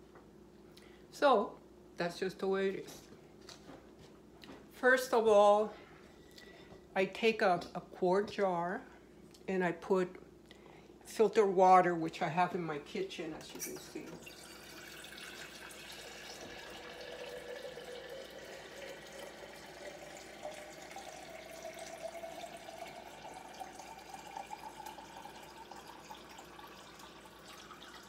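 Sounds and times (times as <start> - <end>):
water filling a glass jar: 13.9 - 28.0.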